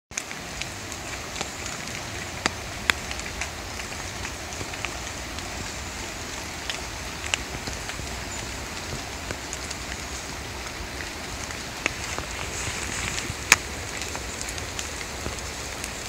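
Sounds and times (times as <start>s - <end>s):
river rushing: 0.1s - 16.0s
water dripping from trees: 0.1s - 16.0s.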